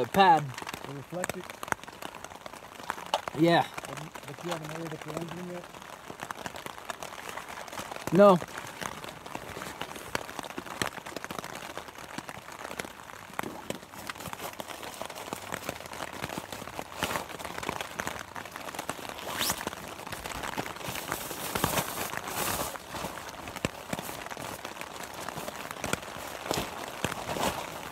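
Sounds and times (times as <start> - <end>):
small ticks and crackles: 0.0 - 27.9
plastic bag crinkling: 7.1 - 27.9.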